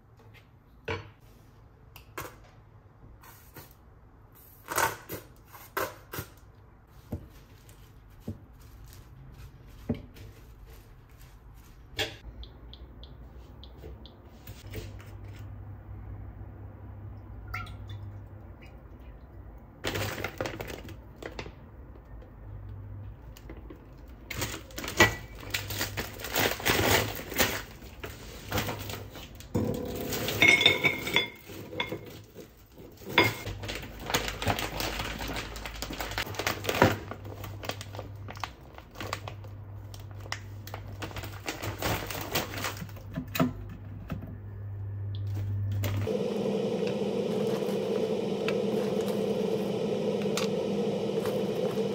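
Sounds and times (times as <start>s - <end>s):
dishes and utensils clattering: 29.6s - 33.5s.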